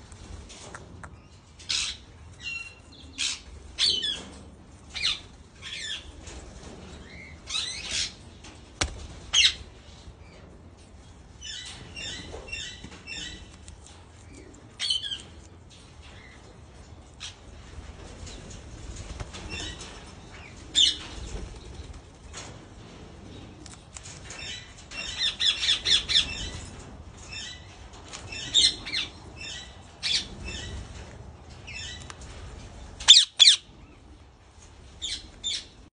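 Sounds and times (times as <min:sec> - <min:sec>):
parakeets squawking: 0:33.1 - 0:33.6.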